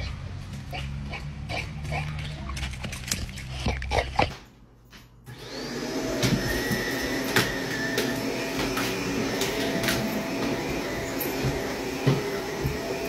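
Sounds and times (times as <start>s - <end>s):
vacuum cleaner running: 5.3s - 13.0s.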